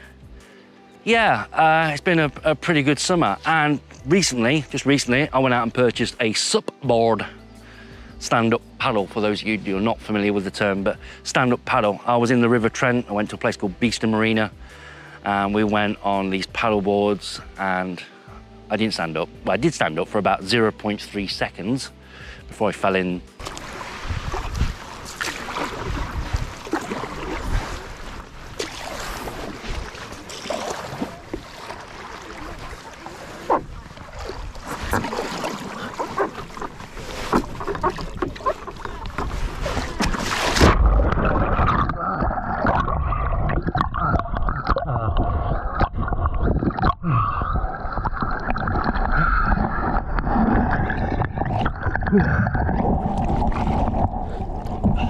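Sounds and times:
water splashing and sloshing: 0:22.8 - 0:55.0
wind buffeting microphone: 0:23.7 - 0:28.6.

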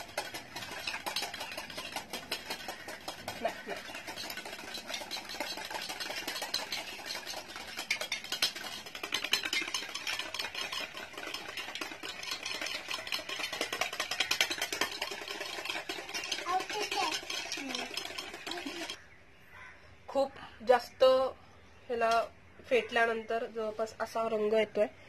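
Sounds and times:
whisk rattling in steel bowl: 0:00.0 - 0:19.0.

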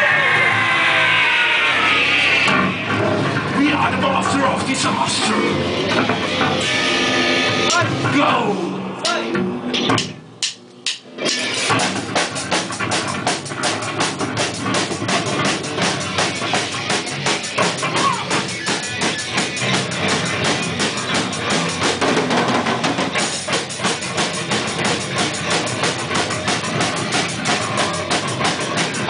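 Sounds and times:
punk band playing live: 0:00.0 - 0:29.0
fast drum kit beat: 0:07.5 - 0:09.2, 0:09.9 - 0:29.0.

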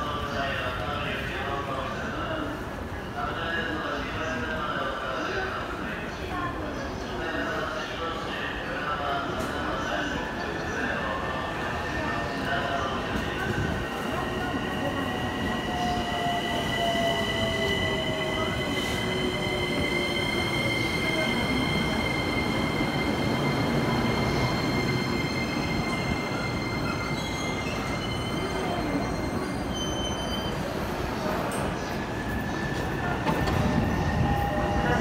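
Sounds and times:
high brake squeal: 0:23.7 - 0:30.8.

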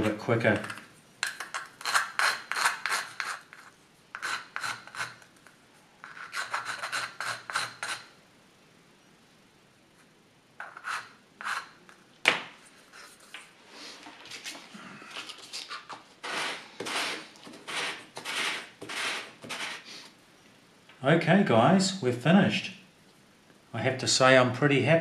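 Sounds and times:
metal file rasping on aluminium: 0:04.2 - 0:05.2, 0:06.0 - 0:08.1, 0:16.2 - 0:19.9.

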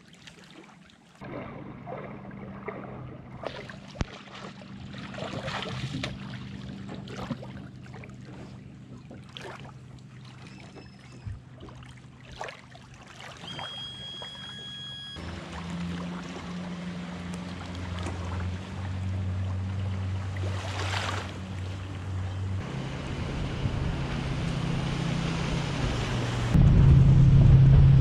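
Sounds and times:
water splashing and lapping: 0:00.0 - 0:26.6
steady low hum: 0:01.2 - 0:13.0, 0:13.6 - 0:28.0
high steady tone: 0:13.4 - 0:15.2
wind on microphone: 0:23.1 - 0:28.0.

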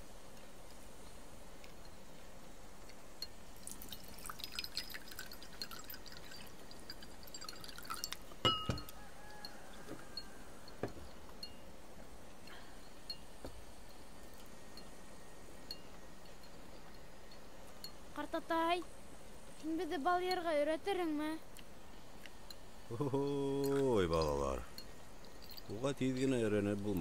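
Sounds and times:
spoon clinking in ceramic bowl: 0:04.4 - 0:09.6
tableware tapping on wooden table: 0:08.4 - 0:09.0, 0:10.8 - 0:11.1
loud knock with ring: 0:08.5 - 0:08.9.

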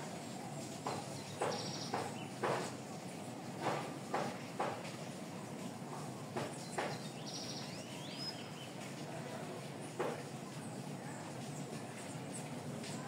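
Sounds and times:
steady background hiss: 0:00.0 - 0:13.0
sharp knocks: 0:00.8 - 0:02.7, 0:03.6 - 0:04.9.

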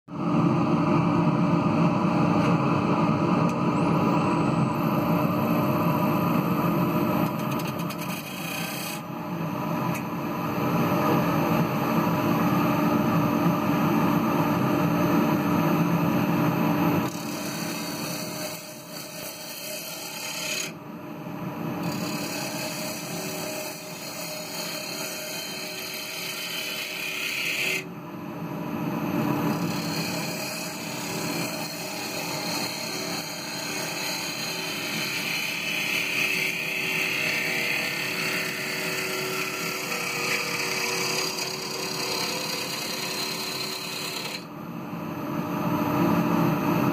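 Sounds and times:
gouge cutting wood: 0:07.3 - 0:09.0, 0:17.0 - 0:20.8, 0:21.8 - 0:27.8, 0:29.5 - 0:44.5
wood lathe running: 0:07.3 - 0:09.0, 0:17.0 - 0:20.8, 0:21.8 - 0:27.8, 0:29.5 - 0:44.5.

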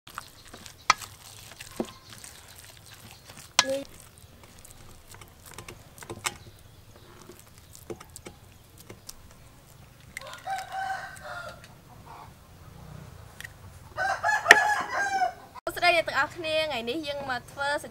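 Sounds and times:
hands working filling in metal bowl: 0:00.1 - 0:10.7
rooster crowing: 0:10.2 - 0:12.3, 0:13.9 - 0:15.6.

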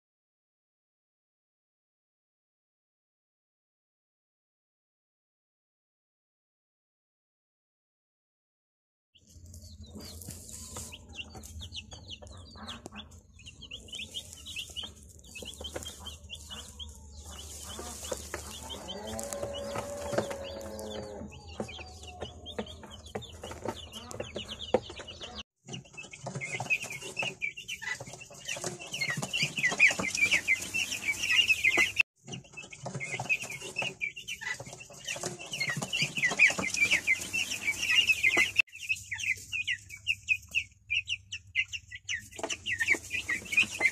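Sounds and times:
chicks peeping: 0:09.2 - 0:43.9.

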